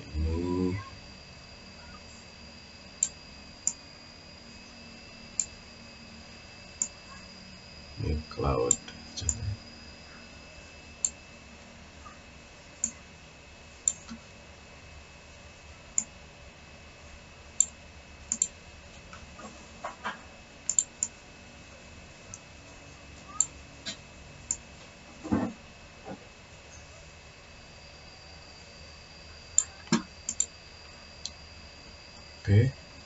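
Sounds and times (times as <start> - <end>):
computer mouse clicking: 17.6 - 18.5, 20.7 - 21.1, 29.6 - 30.5.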